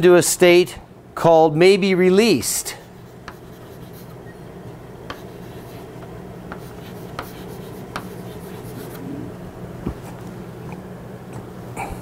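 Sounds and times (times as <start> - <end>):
chalk scratching on blackboard: 2.7 - 4.2, 5.1 - 9.0
chalk tapping on board: 3.2 - 4.1, 5.1 - 9.0.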